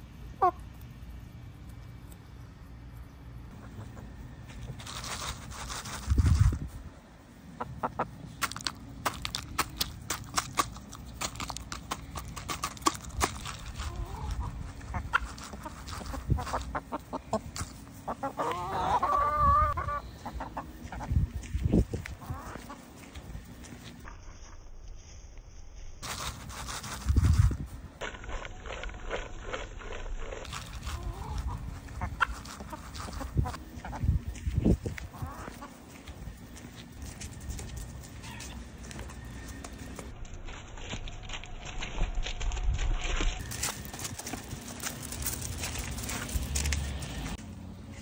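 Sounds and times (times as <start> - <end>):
chickens pecking and scratching: 3.5 - 24.2, 26.0 - 48.0
chicken calling: 7.5 - 8.6, 12.4 - 23.3, 30.4 - 40.0.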